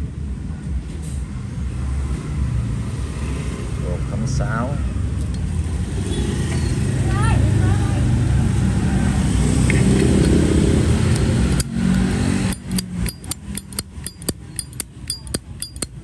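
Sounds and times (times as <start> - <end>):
street traffic: 0.0 - 16.0
sharp clicks: 9.7 - 16.0
motorbike engine running: 10.0 - 16.0.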